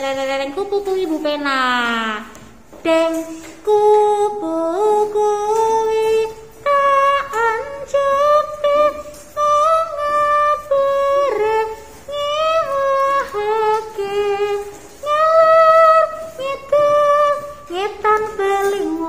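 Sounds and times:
person singing slow melody: 0:02.7 - 0:19.0.

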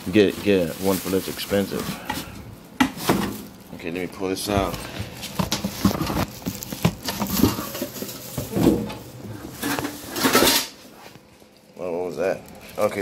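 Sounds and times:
cardboard rustling: 0:00.0 - 0:11.2.

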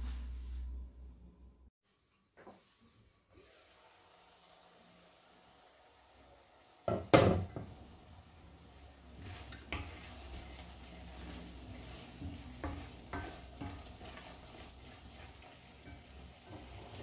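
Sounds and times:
stew simmering sizzle: 0:03.3 - 0:17.0
wooden spoon stirring and scraping pot: 0:06.9 - 0:17.0.

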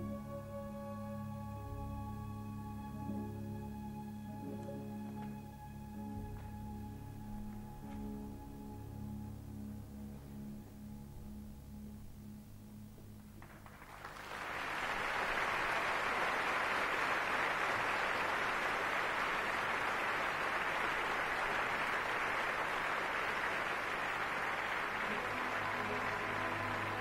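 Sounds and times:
audience applauding: 0:13.4 - 0:27.0
orchestra playing: 0:23.4 - 0:27.0.

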